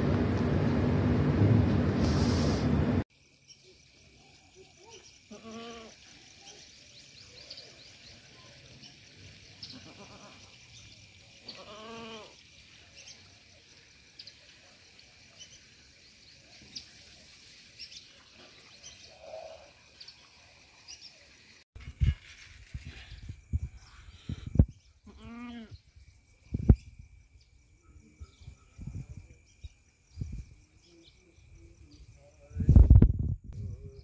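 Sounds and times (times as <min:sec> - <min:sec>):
goat kid bleating: 0:05.3 - 0:05.9, 0:09.7 - 0:10.4, 0:11.5 - 0:12.3, 0:25.0 - 0:25.7.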